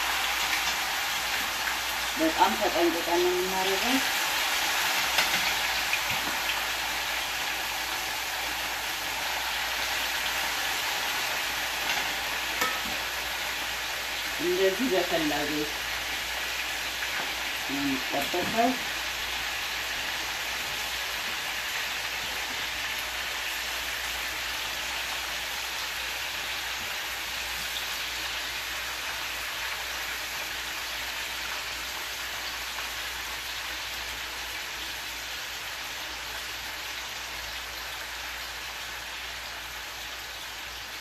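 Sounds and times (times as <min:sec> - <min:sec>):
meat sizzling in hot oil: 0:00.0 - 0:41.0.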